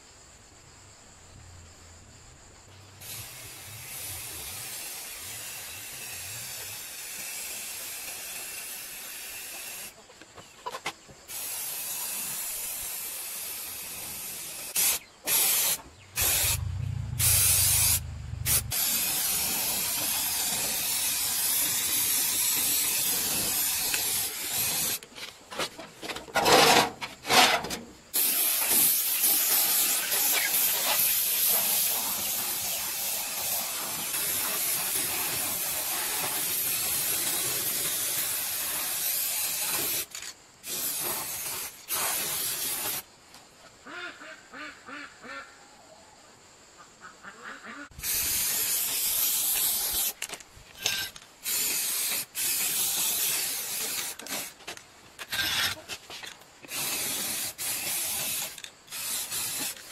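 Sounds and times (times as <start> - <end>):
spray paint can hissing: 3.0 - 10.0, 11.3 - 25.1, 28.1 - 43.1, 48.0 - 54.7, 55.3 - 59.9.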